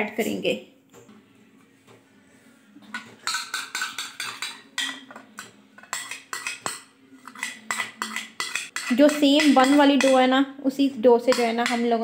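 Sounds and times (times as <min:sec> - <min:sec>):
spoon scraping ceramic bowl: 0:02.9 - 0:10.2.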